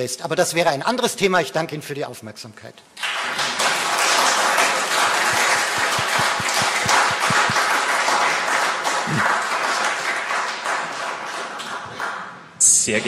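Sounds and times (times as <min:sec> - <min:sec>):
audience applauding: 0:03.0 - 0:12.4.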